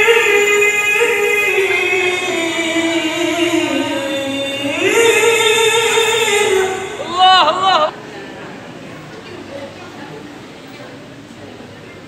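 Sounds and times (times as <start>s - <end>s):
man reciting melodically: 0.0s - 8.0s.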